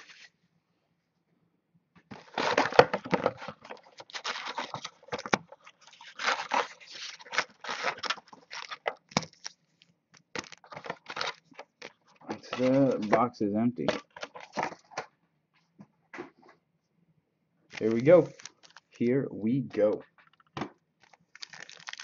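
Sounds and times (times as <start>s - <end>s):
foil packs crinkling and rustling: 2.1s - 13.2s, 17.7s - 19.0s, 21.0s - 22.0s.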